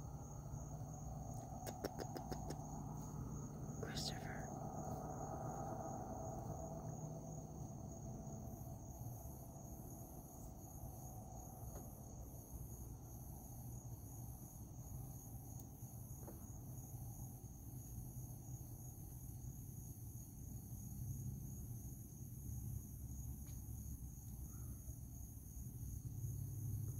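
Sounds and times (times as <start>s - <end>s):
faint low rumble: 0.0s - 18.9s
higher pulsing insect call: 0.0s - 26.9s
night insects trilling: 0.0s - 26.9s.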